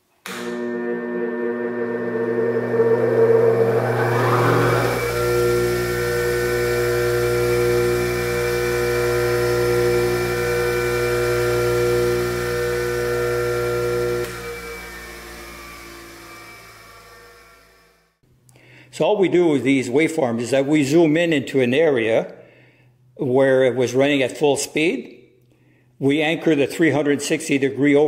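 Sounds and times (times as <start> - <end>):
bench grinder motor whining: 0.3 - 18.2
mains hum: 18.3 - 27.8.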